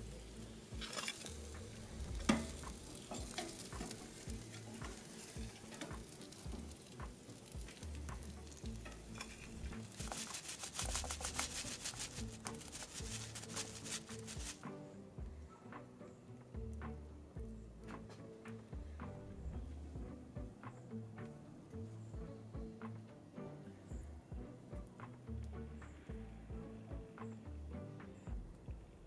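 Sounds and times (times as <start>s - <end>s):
ribs sizzling and crackling: 0.0s - 14.6s.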